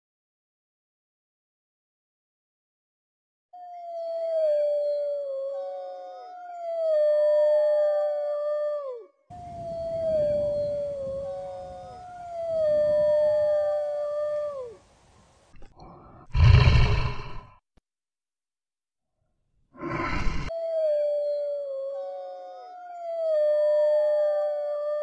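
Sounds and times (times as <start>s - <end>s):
tiger growl: 15.6s - 17.6s.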